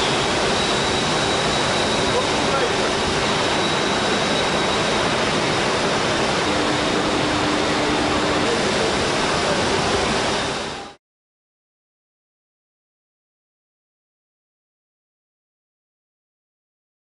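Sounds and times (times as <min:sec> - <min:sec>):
faint high whine: 0:00.0 - 0:11.0
industrial furnace roar: 0:00.0 - 0:11.0
low hum: 0:03.0 - 0:11.0.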